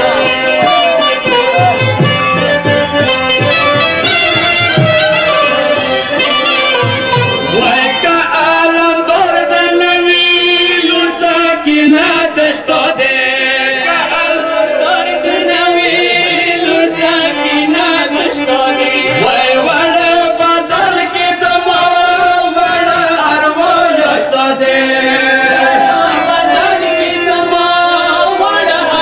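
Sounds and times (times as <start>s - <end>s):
person chanting a lament: 7.6s - 29.0s.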